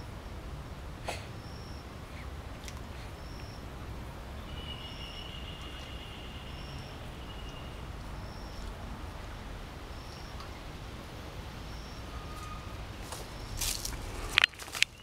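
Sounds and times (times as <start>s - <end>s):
high buzzing call: 3.1s - 8.9s, 11.6s - 13.8s.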